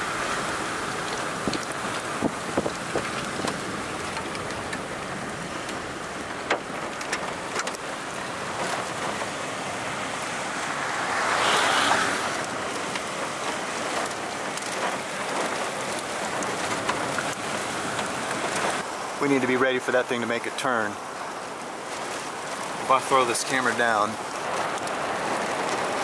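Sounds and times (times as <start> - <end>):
raindrops ticking close by: 0.0 - 26.0
storm wind rushing with rain: 0.0 - 26.0.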